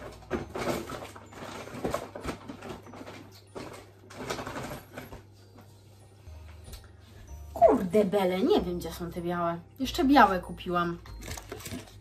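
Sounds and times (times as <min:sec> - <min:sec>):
rustling wrapping paper: 0:11.1 - 0:12.0.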